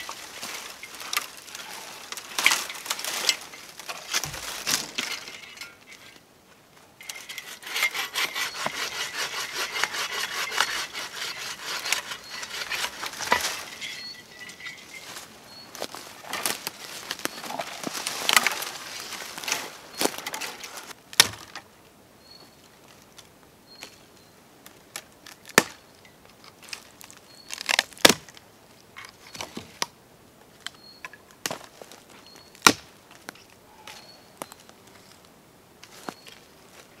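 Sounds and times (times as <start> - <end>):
rustling and crackling: 0.0 - 8.8, 9.8 - 21.0.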